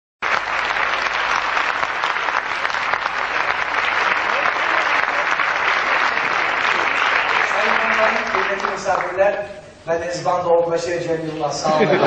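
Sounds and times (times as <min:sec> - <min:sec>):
audience applauding: 0:00.2 - 0:09.3.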